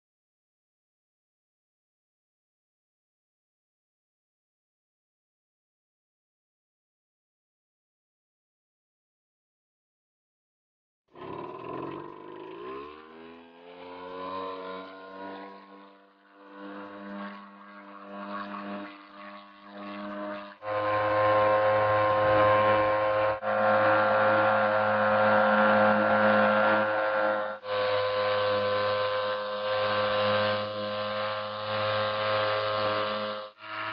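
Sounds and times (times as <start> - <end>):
small boat motor running: 11.2 - 33.9.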